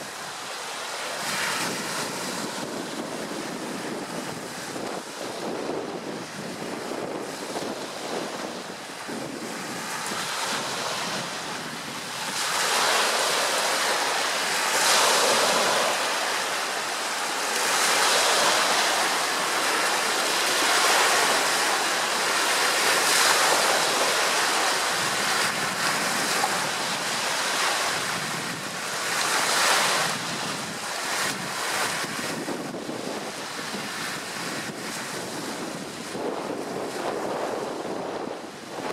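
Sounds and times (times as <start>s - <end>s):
waves washing onto shore: 0.0s - 38.9s
wind buffeting microphone: 1.1s - 38.9s.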